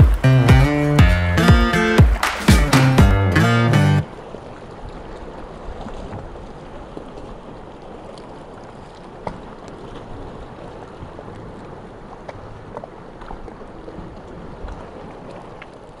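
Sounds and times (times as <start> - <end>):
sea water lapping: 0.0 - 16.0
small splashes and drips: 4.3 - 16.0.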